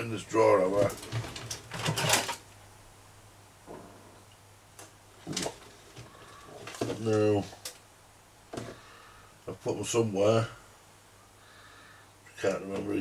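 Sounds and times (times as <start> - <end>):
drawer contents rattling: 0.5 - 2.4, 5.2 - 7.7
drawer sliding open: 5.2 - 7.5.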